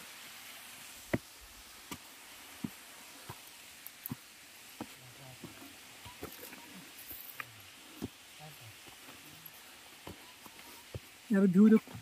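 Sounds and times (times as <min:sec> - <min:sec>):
faint steady hiss: 0:00.0 - 0:12.0
footsteps crunching on rocks and leaves: 0:01.1 - 0:08.2.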